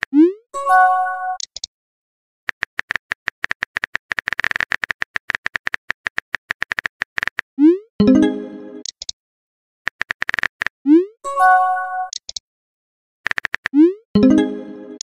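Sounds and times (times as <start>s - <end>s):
chiming tone: 8.0s - 8.8s, 14.2s - 15.0s.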